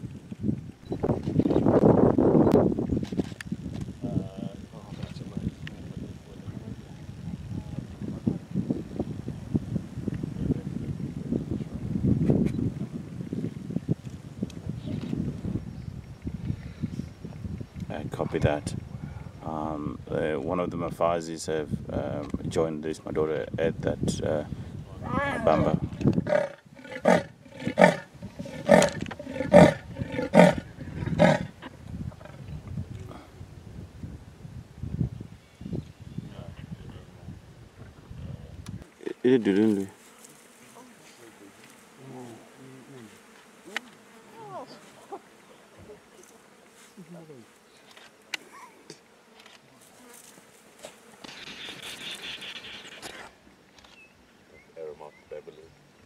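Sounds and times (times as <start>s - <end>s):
insects buzzing: 24.7s - 38.1s, 38.8s - 56.0s
leopard sawing call: 25.1s - 31.5s, 51.3s - 53.3s.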